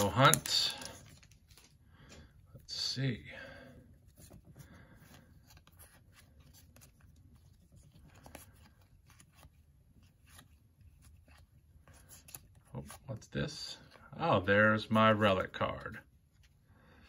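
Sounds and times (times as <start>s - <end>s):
cards flicking and rustling: 0.0s - 2.4s, 4.0s - 14.1s.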